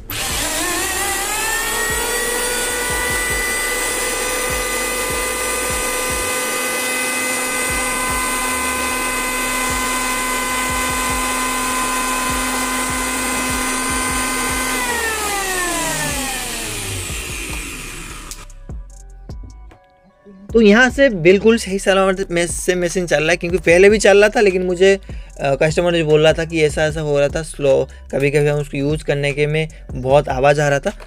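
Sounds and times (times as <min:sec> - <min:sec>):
electric hand planer motor whine: 0:00.0 - 0:18.5.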